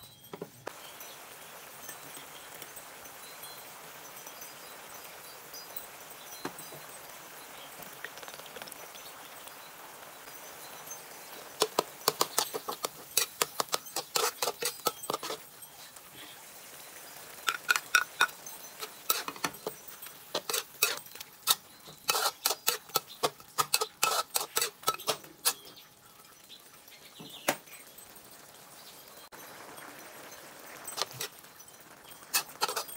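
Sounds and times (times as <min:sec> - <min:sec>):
metal spatula scraping wok: 0:11.3 - 0:16.4, 0:17.2 - 0:25.9, 0:29.9 - 0:32.9.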